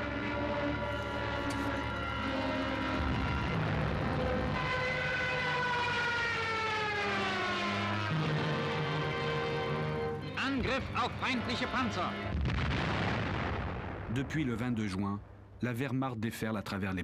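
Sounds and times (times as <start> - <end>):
siren-like wail sliding down: 0.0 - 10.0
documentary music with low notes: 0.0 - 17.0.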